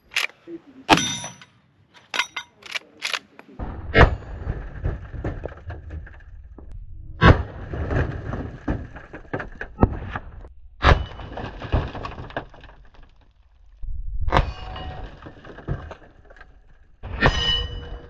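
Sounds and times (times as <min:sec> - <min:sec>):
fragments clattering down: 0:10.9 - 0:13.7, 0:14.6 - 0:17.0.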